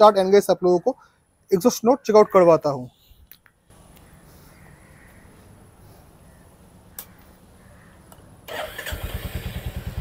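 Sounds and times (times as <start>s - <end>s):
motorcycle engine starting and idling: 8.5s - 10.0s.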